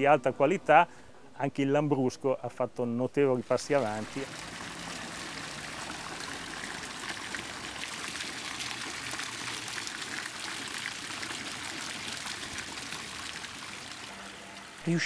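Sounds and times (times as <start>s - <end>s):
running water trickling: 3.4s - 15.0s.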